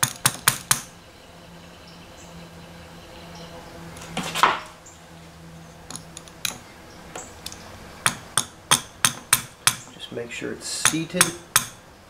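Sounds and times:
sharp taps driving seal: 5.9 - 10.0, 10.8 - 11.8.

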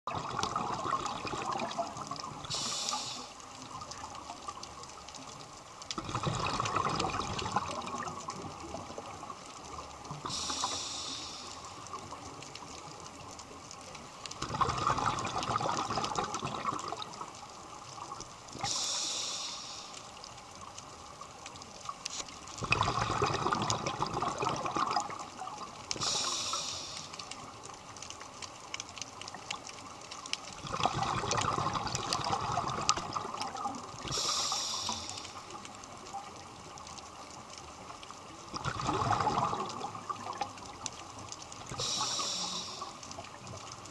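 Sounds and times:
exhale bubbling rush: 0.1 - 3.4, 6.0 - 9.1, 10.2 - 11.8, 14.4 - 17.2, 18.6 - 20.0, 22.6 - 25.3, 26.0 - 27.2, 30.6 - 35.6, 38.6 - 40.5, 41.7 - 43.3
regulator inhale hiss: 2.4 - 3.7, 10.1 - 12.1, 18.6 - 20.4, 25.9 - 27.6, 34.0 - 35.7, 41.7 - 43.3.

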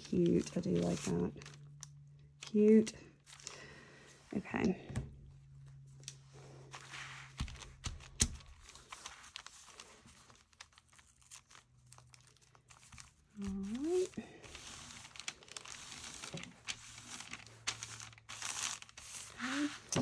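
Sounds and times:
paper rustling and crinkling: 0.0 - 3.8, 5.5 - 20.0
person humming: 13.4 - 14.2, 19.4 - 20.0.

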